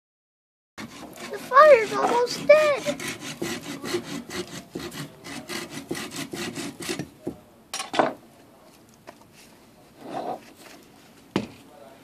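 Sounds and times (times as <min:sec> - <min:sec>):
hand saw cutting branch: 0:00.8 - 0:07.2.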